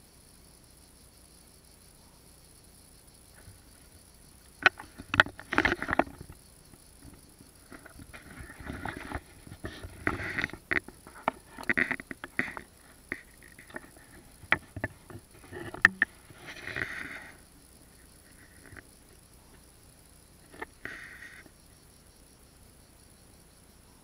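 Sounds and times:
sharp knocks of pebbles: 7.0s - 17.2s.

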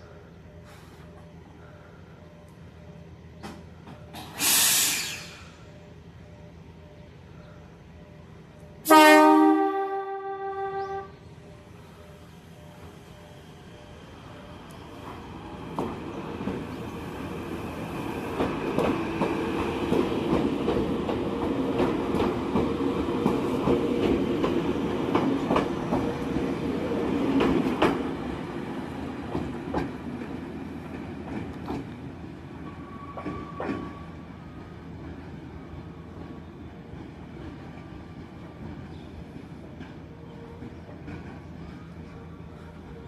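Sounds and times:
electric train passing: 0.0s - 43.0s.

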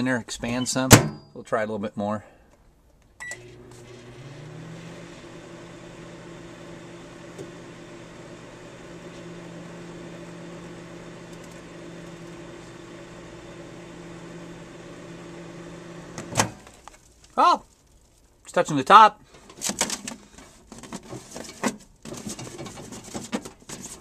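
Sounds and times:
microwave oven humming: 3.2s - 16.7s.

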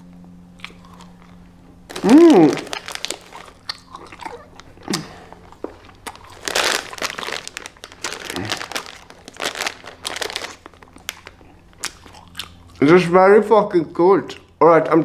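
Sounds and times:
plastic bag crinkling: 1.9s - 12.1s.

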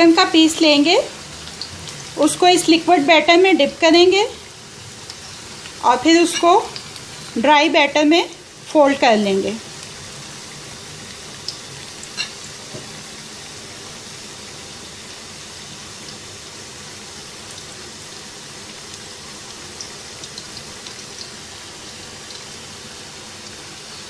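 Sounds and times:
fries sizzling in hot oil: 0.0s - 24.0s
oil popping and crackling: 1.2s - 3.0s, 4.2s - 7.5s, 9.4s - 16.3s, 17.0s - 24.0s.

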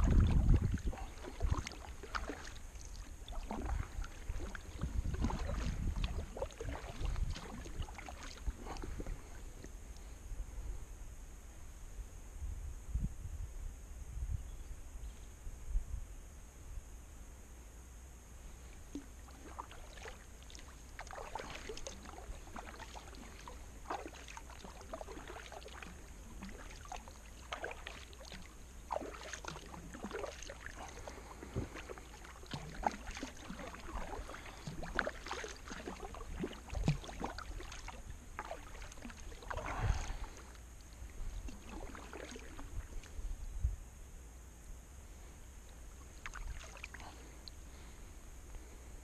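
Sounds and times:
heavy splash and thump: 0.0s - 2.5s, 3.3s - 9.1s, 21.0s - 40.4s
paddle strokes in water: 0.0s - 10.1s, 18.5s - 43.3s, 45.8s - 48.0s.

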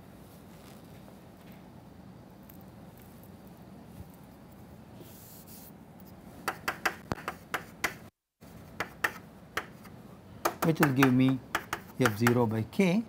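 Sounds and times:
chalk tapping on blackboard: 6.4s - 8.1s, 8.7s - 12.5s
chalk scratching on blackboard: 6.5s - 9.9s, 10.6s - 12.4s.

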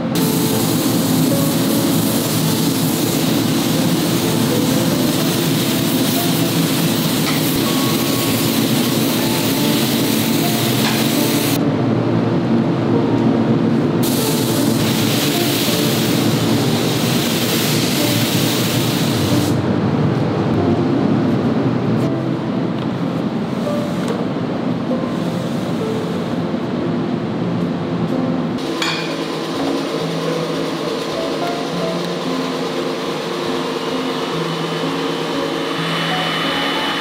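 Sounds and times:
spray gun hissing: 0.0s - 11.6s, 14.0s - 19.6s
steady low drone: 0.0s - 18.2s, 19.3s - 37.0s.

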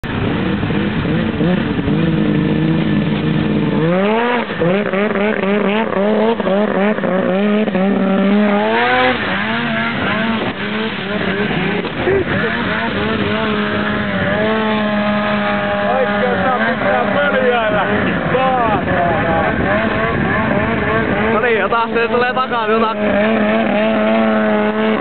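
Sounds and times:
snowmobile engine running hard: 0.0s - 25.0s.

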